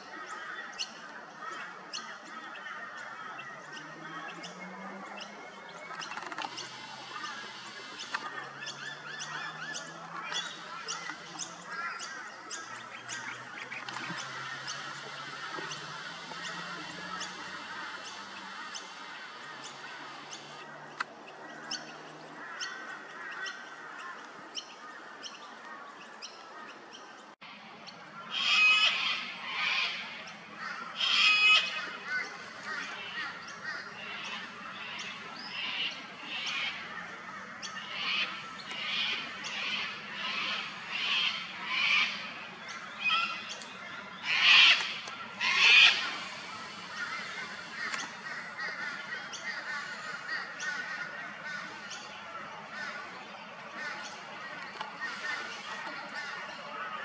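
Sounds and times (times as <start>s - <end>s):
small birds chirping: 0.7s - 22.0s, 32.0s - 56.7s
cockatoo screeching: 44.3s - 47.9s.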